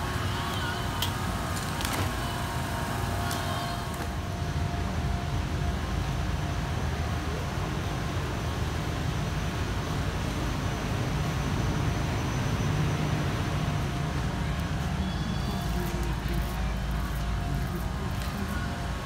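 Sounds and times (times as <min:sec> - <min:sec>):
refrigeration fans rumbling: 0:00.0 - 0:19.0.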